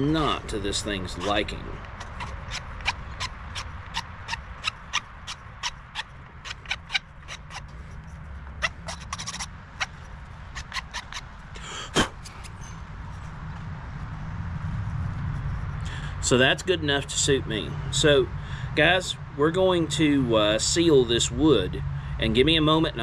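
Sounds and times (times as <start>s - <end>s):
file scraping wood: 1.0s - 11.3s.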